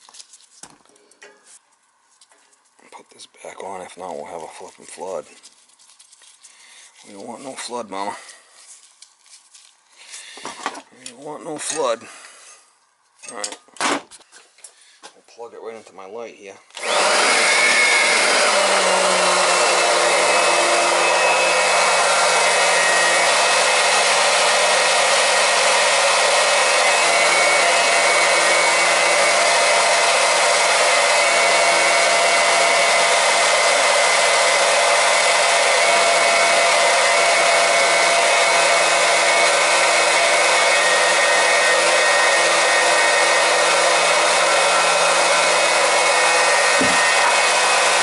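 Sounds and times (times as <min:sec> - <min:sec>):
electric pump whirring: 0:16.8 - 0:48.0.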